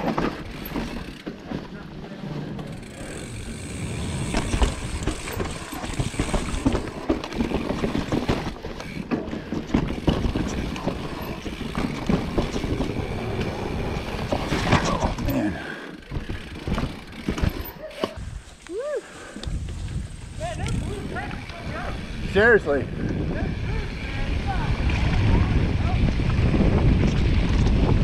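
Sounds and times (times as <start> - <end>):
mountain bike clattering over roots: 0.0 - 18.4.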